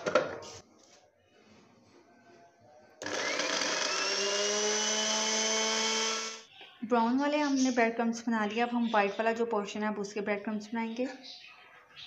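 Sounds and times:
electric chopper motor whine: 0:03.0 - 0:06.4.

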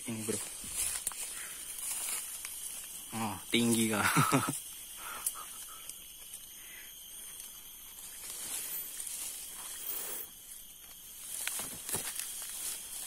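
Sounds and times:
footsteps in dry leaves: 0:00.0 - 0:03.1, 0:11.0 - 0:13.0
twigs snapping: 0:00.5 - 0:03.0, 0:10.8 - 0:13.0.

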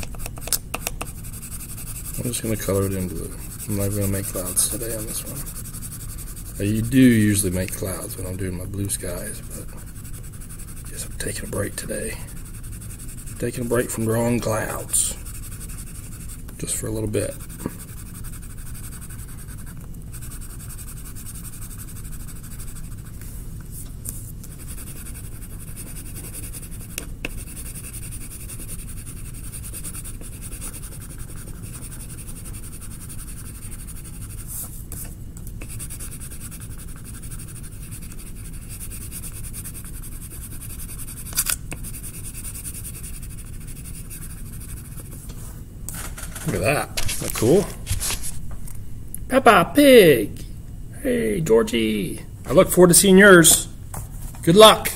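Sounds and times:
pencil scratching on paper: 0:00.0 - 0:23.1, 0:24.5 - 0:35.0, 0:35.6 - 0:45.2.

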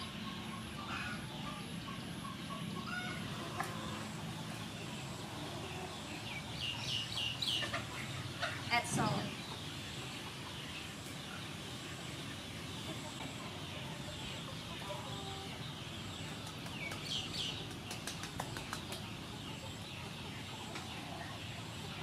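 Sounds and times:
chickens clucking: 0:00.0 - 0:22.0
outdoor ambience: 0:00.0 - 0:22.0.

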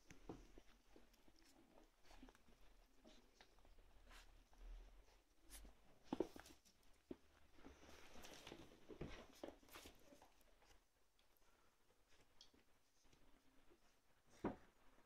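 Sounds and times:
puppy scuffling on carpet: 0:00.1 - 0:10.9.

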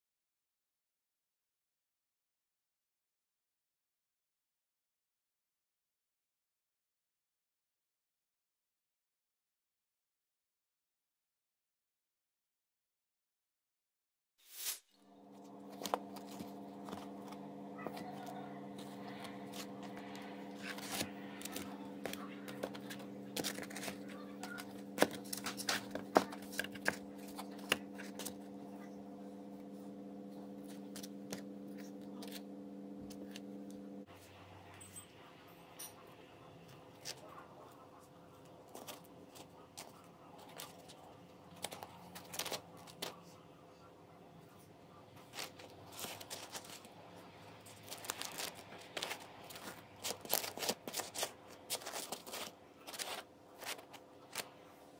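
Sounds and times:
electrical hum: 0:15.0 - 0:54.9
bread crust crackling: 0:15.4 - 0:34.0, 0:38.5 - 0:43.2, 0:45.2 - 0:54.8.

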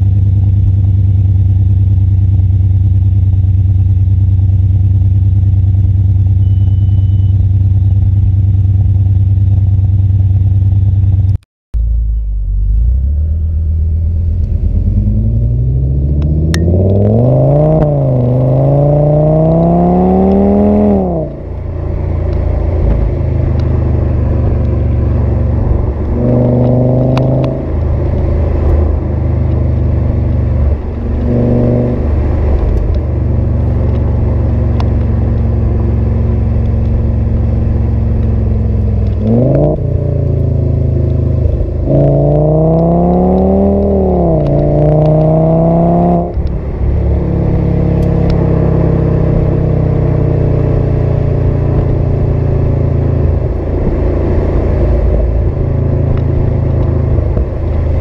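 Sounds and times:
car engine accelerating: 0:11.8 - 0:58.0.

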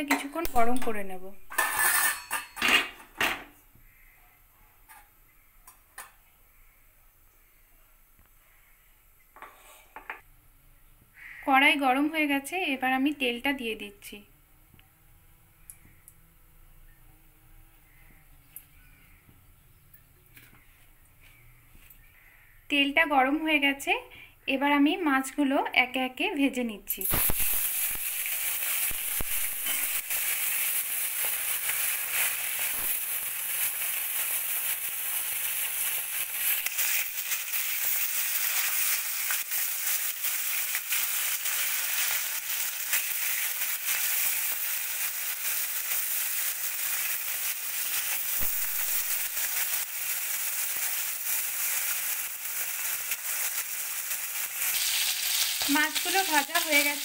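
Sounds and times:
fish sizzling in hot oil: 0:27.0 - 0:57.0.

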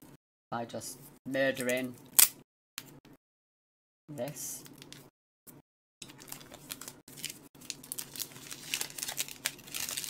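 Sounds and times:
packaging ripping and crinkling: 0:06.0 - 0:10.0.

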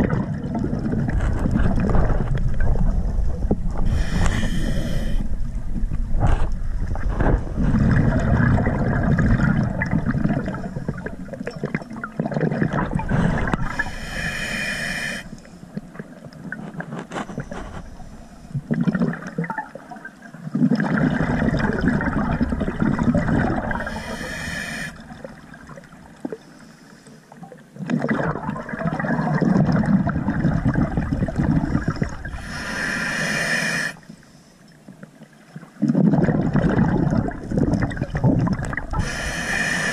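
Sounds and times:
gurgling rush of exhaled bubbles: 0:00.0 - 0:14.0, 0:18.6 - 0:26.0, 0:27.8 - 0:33.0, 0:35.8 - 0:39.9
regulator inhalation hiss: 0:03.9 - 0:05.3, 0:13.7 - 0:15.4, 0:23.8 - 0:25.0, 0:32.4 - 0:34.1, 0:39.0 - 0:39.9.

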